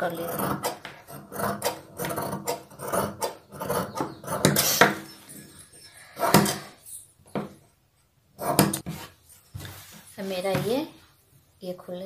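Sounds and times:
shears cutting fabric: 0.0 - 5.1.

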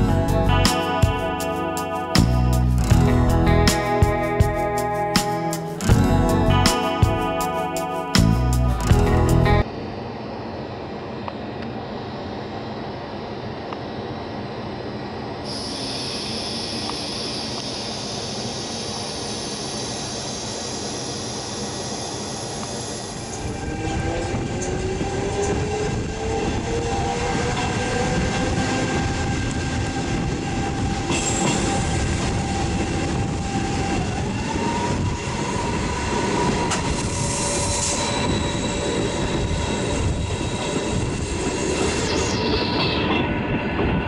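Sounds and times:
train rumbling with hiss: 10.5 - 44.0.

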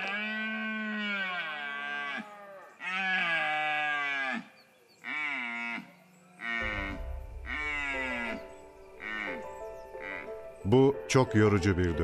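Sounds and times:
low rumble: 6.6 - 9.8.

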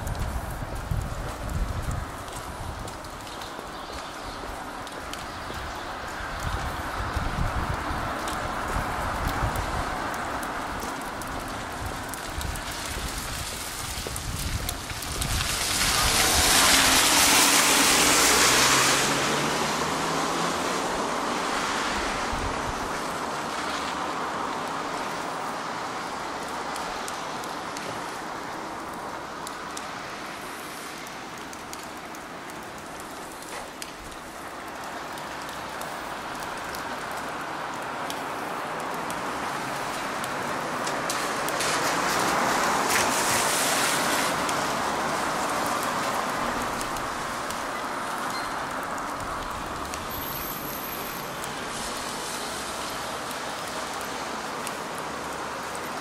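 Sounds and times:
tyres hissing on wet road: 0.0 - 56.0
car passing close by: 15.4 - 24.8.

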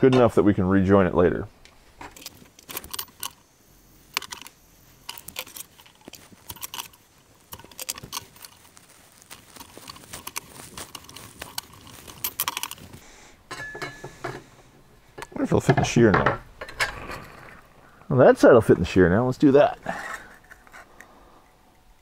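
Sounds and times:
metal parts and tools clinking: 2.0 - 14.5, 15.2 - 17.6.

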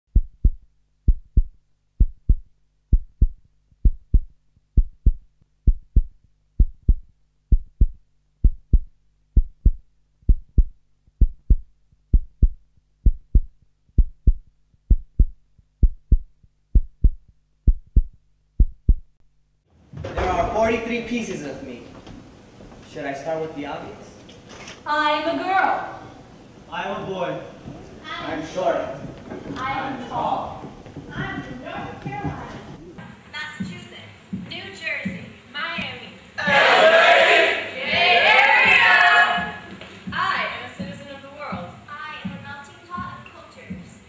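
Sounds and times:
heartbeat thumps: 0.1 - 19.2, 28.9 - 33.0, 39.4 - 44.0.

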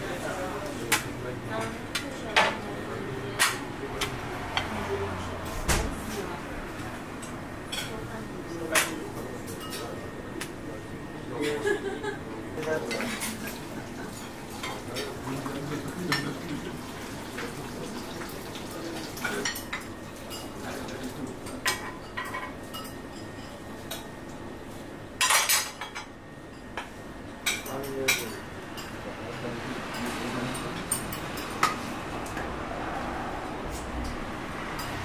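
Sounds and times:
loud clatter of dishes: 2.3 - 2.6, 5.5 - 6.2, 21.4 - 24.1, 25.2 - 26.2
metal spoons clinking on plates: 8.7 - 10.0, 15.9 - 16.5, 19.1 - 24.1, 25.2 - 26.7, 27.4 - 29.0, 29.9 - 31.8.

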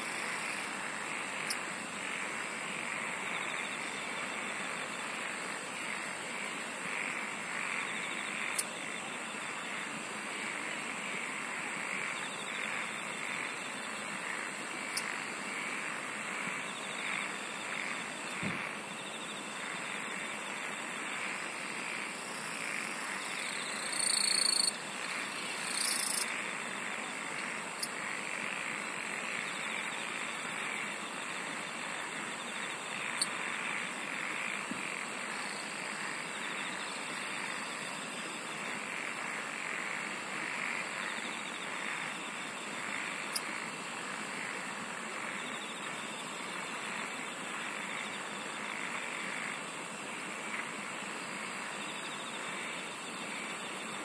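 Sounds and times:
chorus of frogs and insects: 0.0 - 54.0
high insect trills: 0.0 - 54.0.

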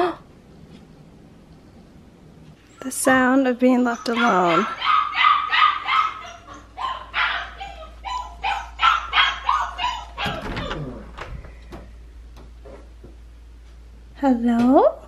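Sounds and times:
puppy yipping and barking: 3.9 - 10.4
door clattering open: 10.0 - 12.6.

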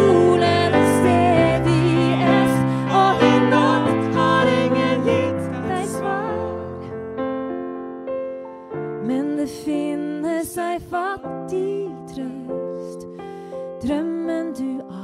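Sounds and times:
slow gentle song with piano: 0.0 - 15.0.

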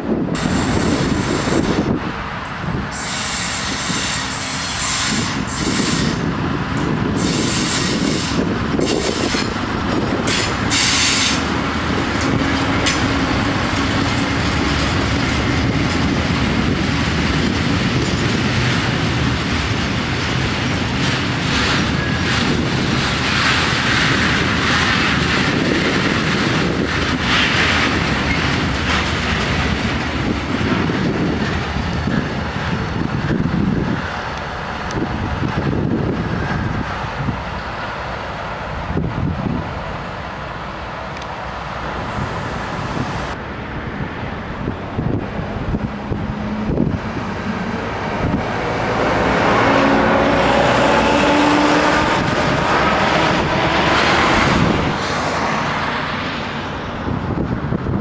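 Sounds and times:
train rolling past: 0.0 - 58.0
wheels clattering over rail joints: 0.3 - 43.4
wheel screeches: 3.0 - 6.3, 7.2 - 9.6, 10.2 - 11.5.

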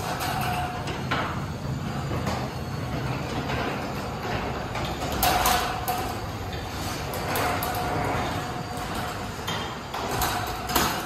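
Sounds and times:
thin motor whine: 0.0 - 11.0
garage door opener rattling: 2.8 - 11.0.

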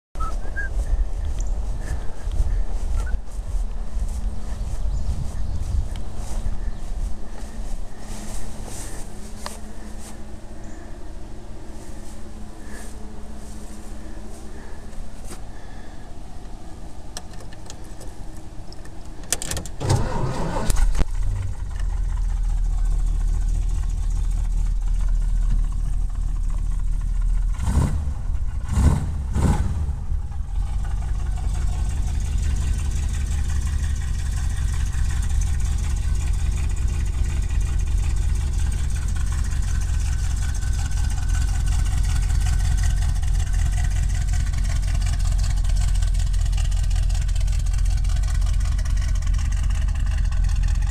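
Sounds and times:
engine idling: 0.2 - 50.9
engine cranking and starting: 17.1 - 50.9
engine revving: 19.8 - 50.9.

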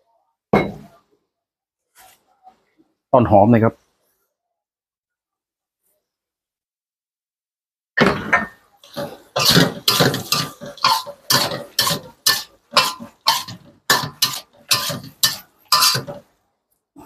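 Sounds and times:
metal ladle scraping a wok: 8.8 - 16.2.

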